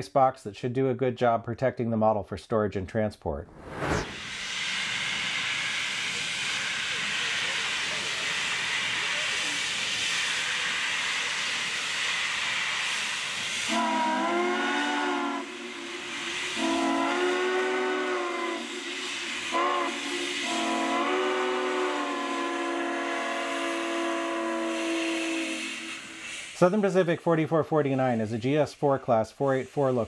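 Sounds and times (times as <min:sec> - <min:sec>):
steam hissing from locomotive: 0:03.6 - 0:30.0
steam locomotive chime whistle: 0:13.6 - 0:26.9.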